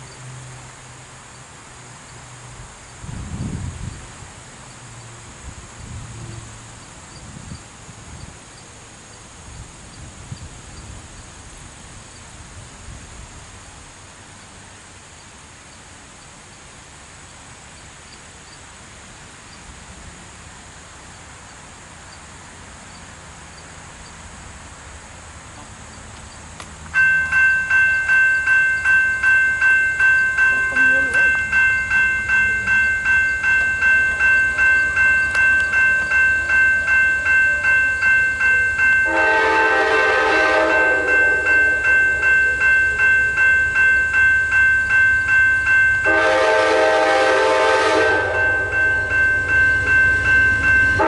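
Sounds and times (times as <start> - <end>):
high insect drone: 1.2 - 26.5
railroad crossing bell: 26.9 - 51.0.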